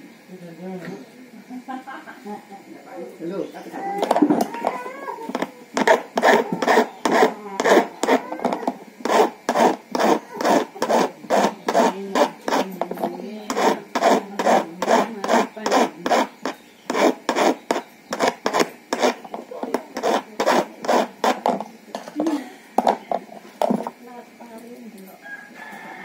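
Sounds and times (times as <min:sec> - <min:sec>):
hand file rasping on metal: 0:05.3 - 0:21.6.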